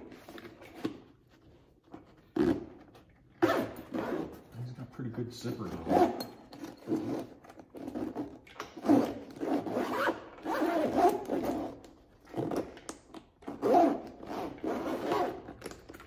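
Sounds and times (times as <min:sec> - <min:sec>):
zipper pulled open and shut: 0:02.2 - 0:04.6, 0:05.8 - 0:16.0.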